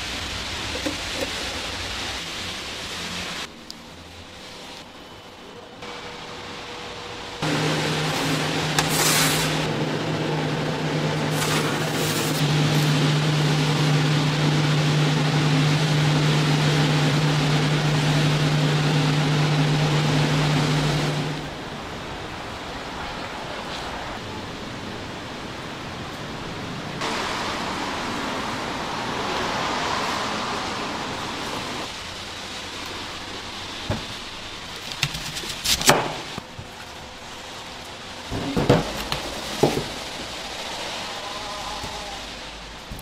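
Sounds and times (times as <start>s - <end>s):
street noise hiss: 0.0s - 43.0s
low hum: 1.9s - 22.7s
cars passing: 26.6s - 32.0s.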